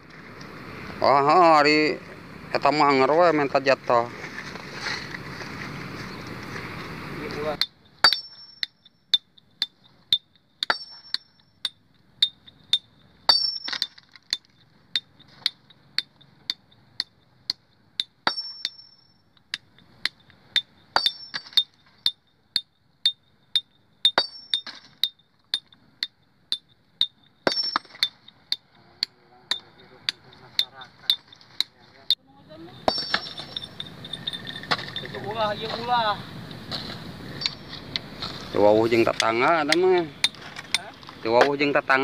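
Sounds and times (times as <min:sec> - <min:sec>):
hammer striking boulder: 0:07.6 - 0:19.0, 0:19.6 - 0:21.8, 0:22.6 - 0:25.7, 0:26.5 - 0:28.6, 0:32.8 - 0:35.1.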